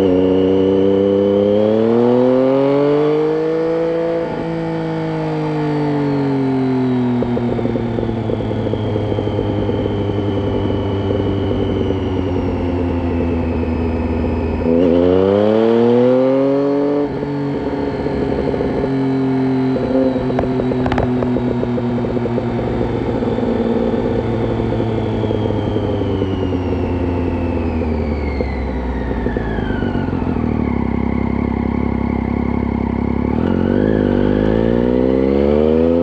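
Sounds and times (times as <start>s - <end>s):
motorcycle engine revving: 0.0s - 36.0s.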